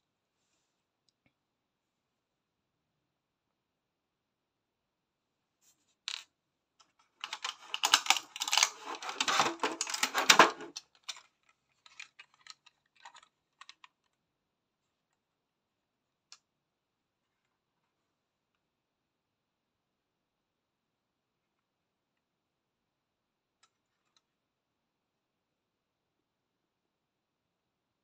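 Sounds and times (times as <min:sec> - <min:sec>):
plastic packaging clicking and crackling: 0:07.1 - 0:14.2.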